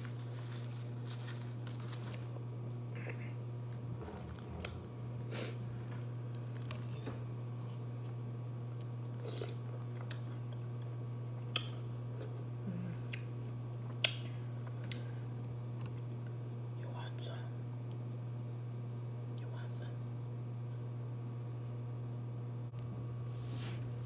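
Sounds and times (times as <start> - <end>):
steady low hum: 0.0 - 24.0
ice crunching while chewed: 6.3 - 12.4.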